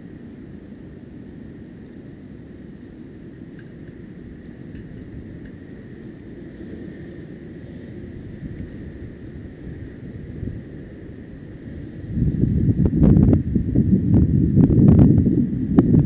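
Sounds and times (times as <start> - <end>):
faint high whine: 0.0 - 16.0
wind buffeting microphone: 3.3 - 16.0.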